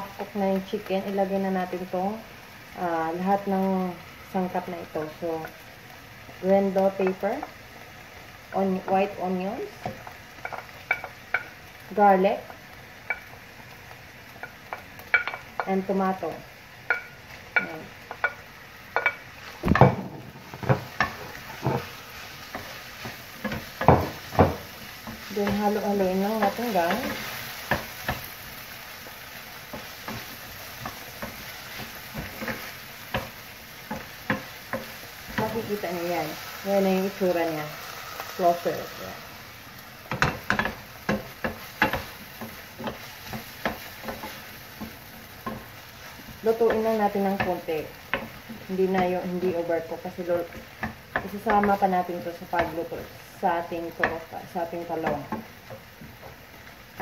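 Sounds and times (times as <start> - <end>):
faint frying sizzle: 0.0 - 57.0
wooden spoon knocking on pan: 9.8 - 11.6, 14.4 - 16.0, 16.8 - 28.3, 29.6 - 36.2, 40.0 - 52.9, 53.6 - 57.0.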